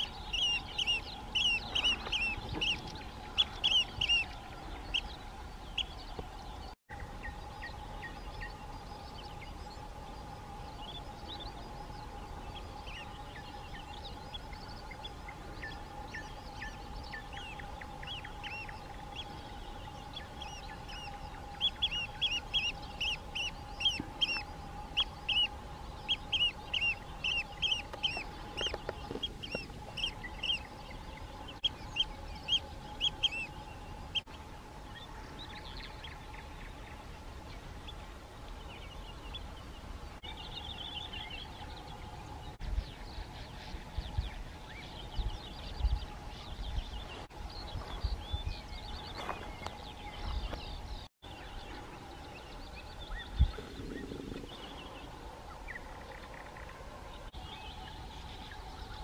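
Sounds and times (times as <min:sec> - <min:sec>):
oystercatchers piping calls: 0:00.0 - 0:06.1, 0:10.7 - 0:34.3
steady hum: 0:00.0 - 0:59.0.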